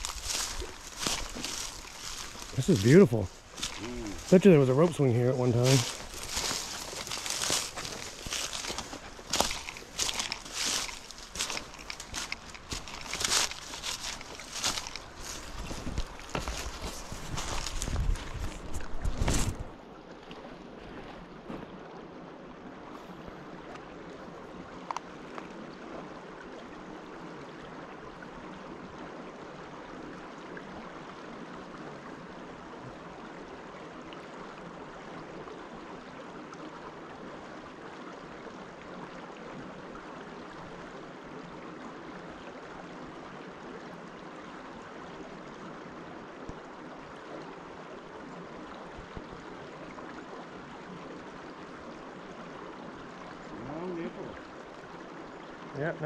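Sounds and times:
brook water running: 0.0 - 56.0.

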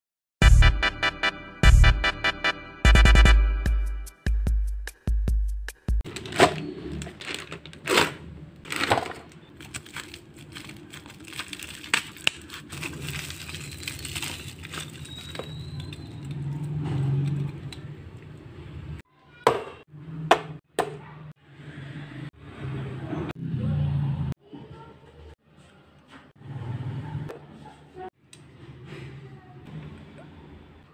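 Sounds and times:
bubble wrap crinkling: 6.0 - 16.5.

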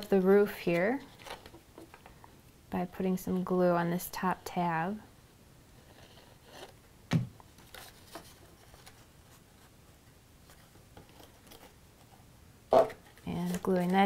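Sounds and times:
cardstock rustling and creasing: 0.3 - 2.0, 7.4 - 9.7, 10.4 - 12.2, 12.8 - 14.0.

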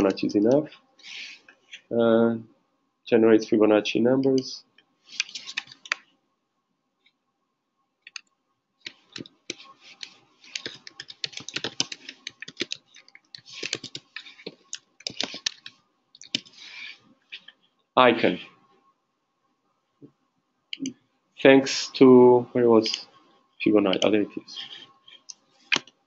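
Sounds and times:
computer keyboard typing: 5.2 - 6.0, 8.1 - 8.3, 8.9 - 16.6.

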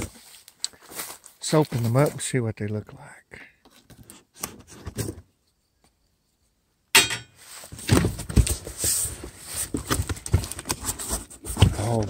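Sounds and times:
packing paper rustling: 7.6 - 12.0.

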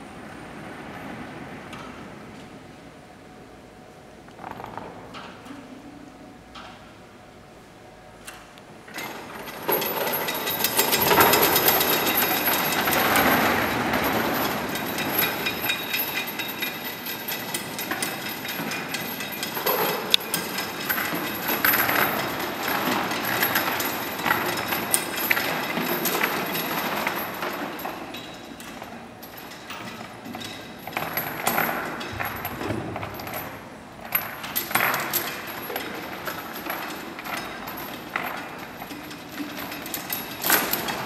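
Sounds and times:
heavy steel chains rattling: 8.9 - 41.0
sharp chain clank: 8.9 - 41.0.

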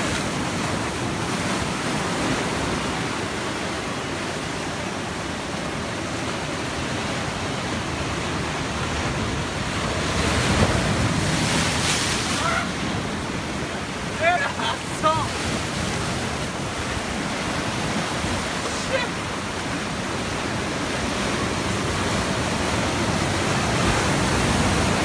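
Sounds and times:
ocean waves breaking: 0.0 - 25.0.

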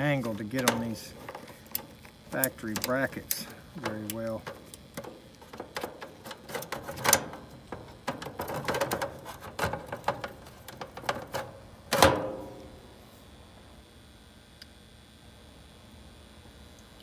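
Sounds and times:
clicks and scrapes of capacitor: 0.0 - 12.3
metal clank: 11.0 - 12.7.

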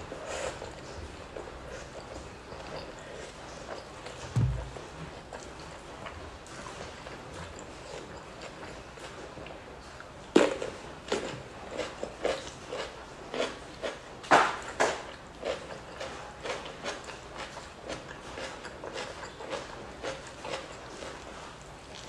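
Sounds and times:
wet chewing: 0.1 - 22.0
cucumber crunching: 4.2 - 4.8.

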